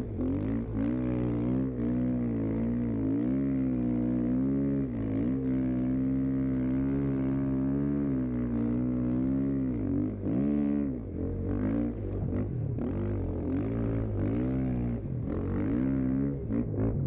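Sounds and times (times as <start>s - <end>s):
dirt bike engine revving: 0.0s - 17.0s.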